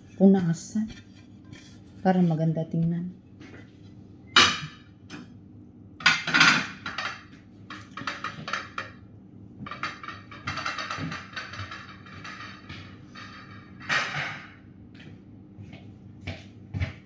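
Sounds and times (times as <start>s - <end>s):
kitchenware clatter: 4.3s - 5.3s, 6.0s - 9.0s, 9.6s - 14.7s.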